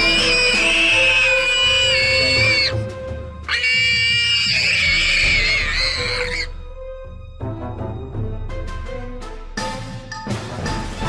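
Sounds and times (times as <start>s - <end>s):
animal screaming: 0.0s - 2.8s, 3.5s - 6.5s.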